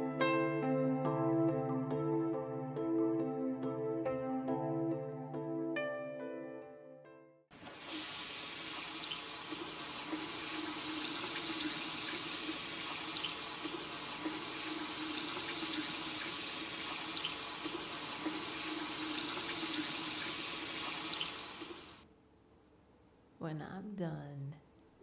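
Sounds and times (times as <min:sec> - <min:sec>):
faucet water pouring into sink: 0:07.5 - 0:22.0.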